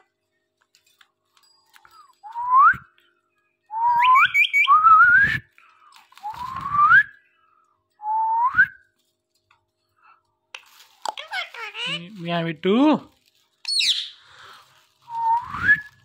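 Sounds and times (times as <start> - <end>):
parakeet whistling: 3.9 - 5.0, 13.7 - 14.2
high bird chirps: 4.0 - 4.8, 13.7 - 14.3.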